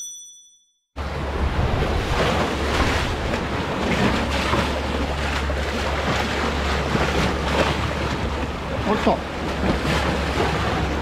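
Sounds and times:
seawater surging and splashing: 0:01.0 - 0:11.0.

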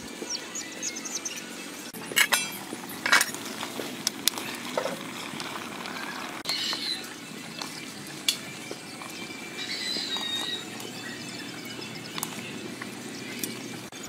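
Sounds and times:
metal ladle clinking on pot: 0:02.2 - 0:03.4.

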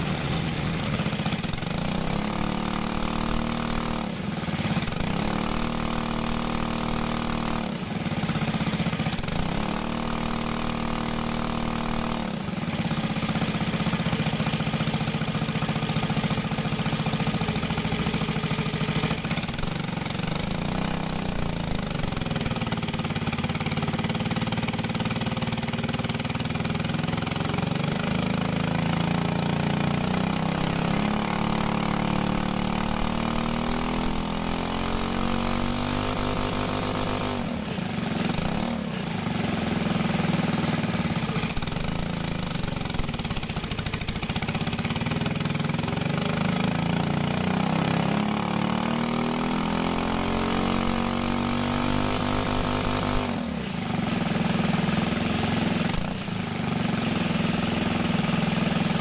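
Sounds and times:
small engine running: 0:00.0 - 0:59.0.

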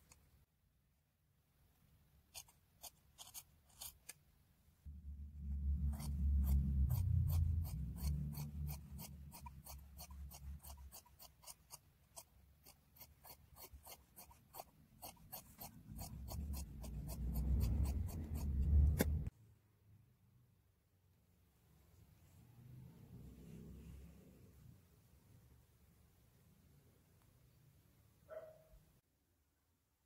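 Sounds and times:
low rumble: 0:04.9 - 0:09.0, 0:16.4 - 0:19.3
scissors snipping cloth: 0:07.4 - 0:19.3.

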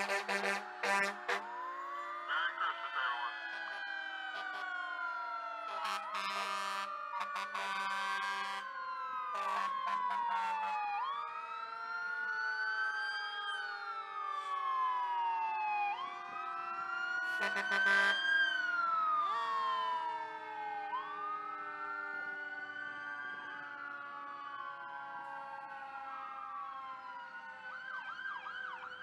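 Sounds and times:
horn blasts: 0:00.0 - 0:01.4
fire truck sirens wailing: 0:00.0 - 0:29.0.

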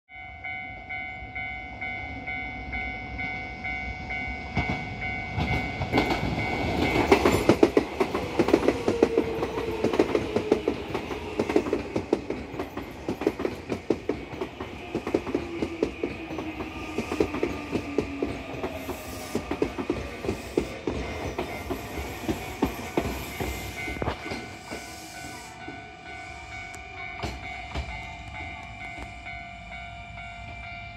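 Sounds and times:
train wheels clacking over rail joints: 0:04.5 - 0:25.8
train motor whine: 0:05.4 - 0:30.2.

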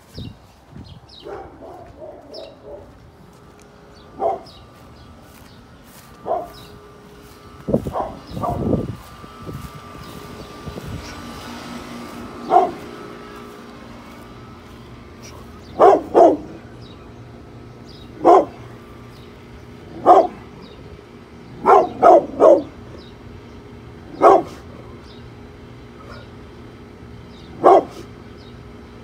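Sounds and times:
dog barking: 0:01.2 - 0:03.0, 0:04.2 - 0:04.6, 0:06.2 - 0:06.6, 0:07.9 - 0:08.7, 0:12.4 - 0:12.8, 0:15.7 - 0:16.6, 0:18.2 - 0:18.6, 0:20.0 - 0:20.5, 0:21.6 - 0:22.8, 0:24.2 - 0:24.6, 0:27.6 - 0:28.1.

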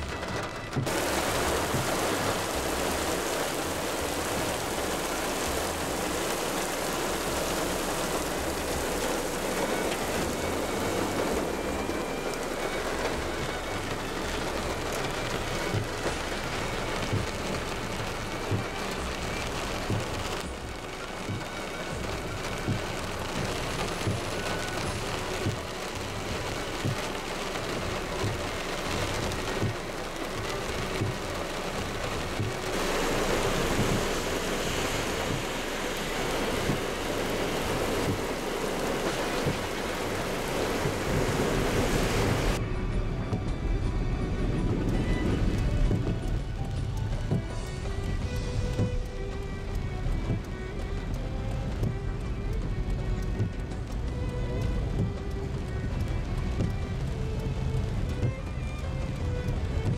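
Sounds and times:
heavy rain hissing: 0:00.0 - 0:42.6.

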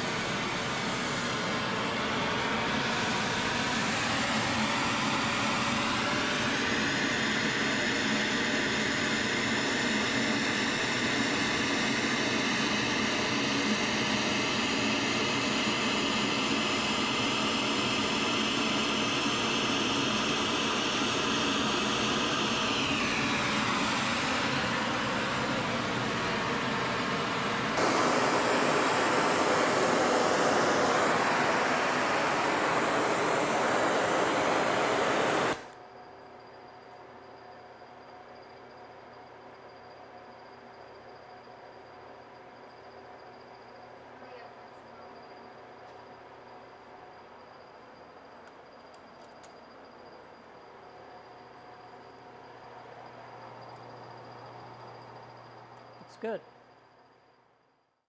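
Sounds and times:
rising whine: 0:00.1 - 0:35.8
welding torch hissing: 0:27.8 - 0:35.8.

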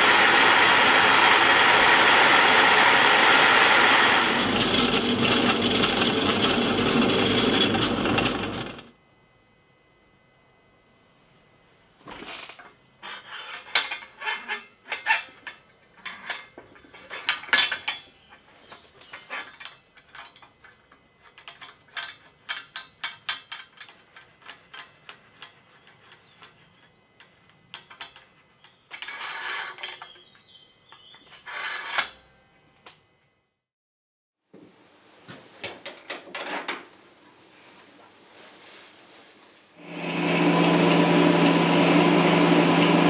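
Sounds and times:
metal sliding on metal: 0:13.0 - 0:30.3, 0:31.3 - 0:32.3.

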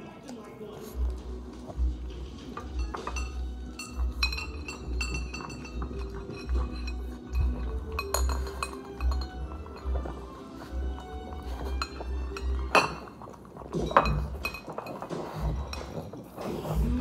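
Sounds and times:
dog eating from a bowl: 0:00.0 - 0:17.0
collar tag clinking on ceramic bowl: 0:02.5 - 0:10.3, 0:11.4 - 0:16.2.

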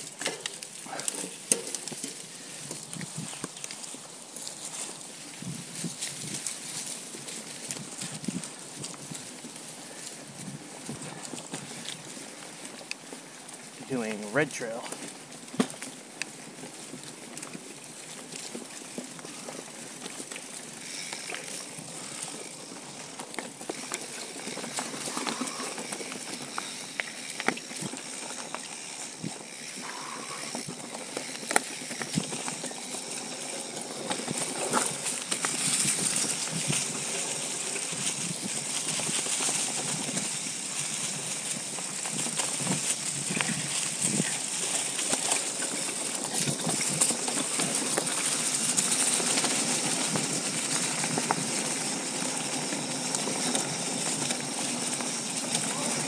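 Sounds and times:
bike knocking and rattling: 0:00.0 - 0:13.8, 0:14.6 - 0:56.0
bike tyres on dirt and leaves: 0:00.0 - 0:56.0.

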